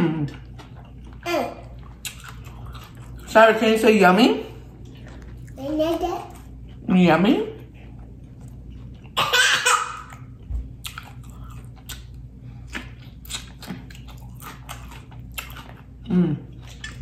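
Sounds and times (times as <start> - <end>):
wet chewing clicks and smacks: 0.3 - 3.3, 10.1 - 17.0.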